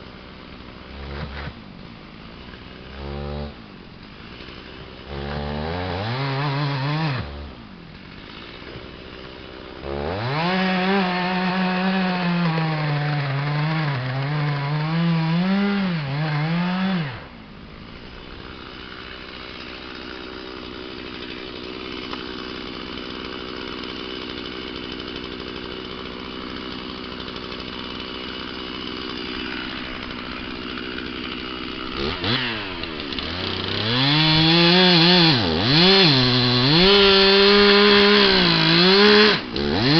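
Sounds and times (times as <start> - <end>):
chainsaw cutting log: 0.0 - 39.9.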